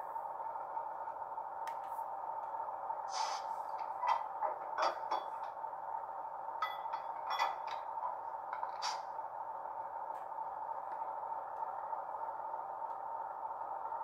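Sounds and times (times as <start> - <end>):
diesel engine sound through speaker: 0.0 - 14.0
short hisses: 3.1 - 3.6.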